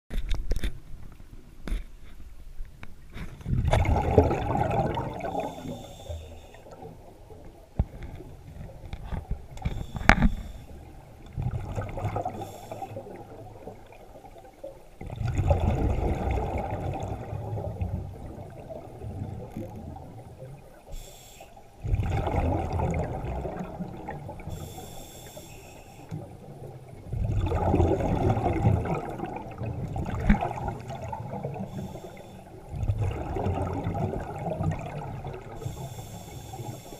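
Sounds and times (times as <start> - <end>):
bubbling exhaled air underwater: 3.4 - 21.1, 21.8 - 25.5, 26.1 - 36.9
regulator hissing on inhale: 5.4 - 6.8, 9.7 - 10.9, 12.3 - 13.1, 20.9 - 21.8, 24.4 - 26.2, 31.6 - 32.7, 35.6 - 36.9.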